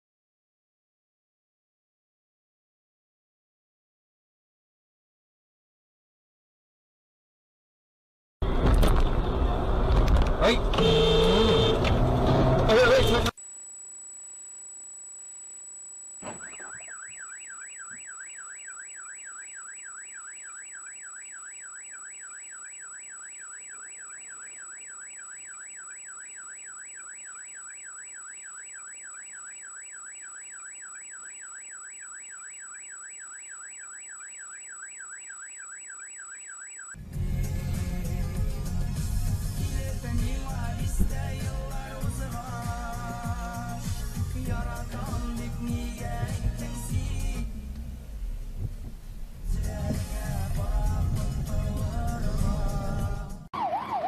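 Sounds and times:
car alarm siren warbling: 0:16.2 - 0:37.0, 0:53.5 - 0:54.0.

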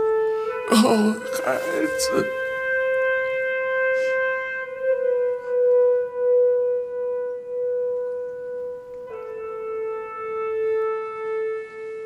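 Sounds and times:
long held music note: 0:00.0 - 0:06.3.

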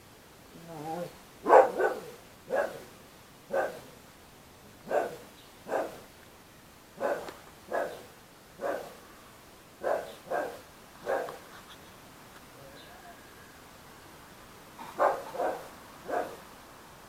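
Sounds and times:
dog barking: 0:01.4 - 0:02.9, 0:03.5 - 0:03.9, 0:04.8 - 0:06.0, 0:07.0 - 0:09.0, 0:09.8 - 0:11.4, 0:14.9 - 0:16.4.

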